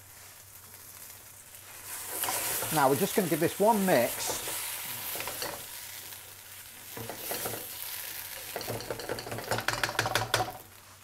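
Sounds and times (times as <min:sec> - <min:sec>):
sauce sizzling in a wok: 0:00.0 - 0:11.0
spatula scraping a pan: 0:01.7 - 0:03.0, 0:04.0 - 0:06.0, 0:06.9 - 0:10.2.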